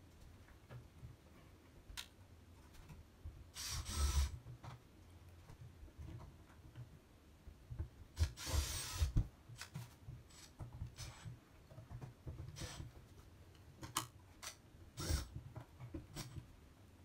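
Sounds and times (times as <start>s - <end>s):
cordless drill driving screw: 3.6s - 4.3s, 8.2s - 9.2s, 15.0s - 15.3s.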